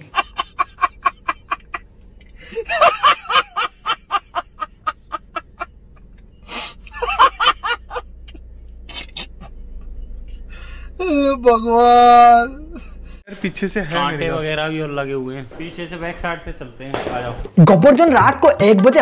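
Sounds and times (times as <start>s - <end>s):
man laughing hard: 0.0s - 1.8s, 2.4s - 5.7s, 6.5s - 8.0s.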